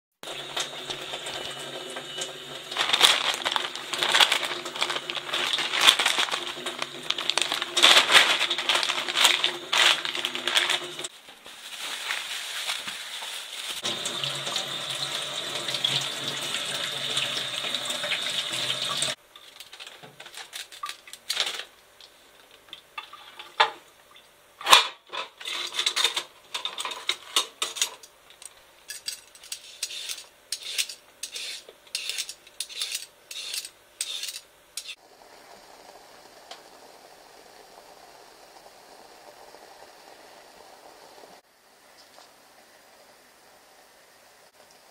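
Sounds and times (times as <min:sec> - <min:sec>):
water running from tap: 0:00.2 - 0:11.1, 0:13.8 - 0:19.2, 0:35.1 - 0:41.4
dishes and utensils clattering: 0:23.0 - 0:23.8, 0:24.6 - 0:28.1, 0:28.8 - 0:35.0
faint steady hiss: 0:26.2 - 0:44.9.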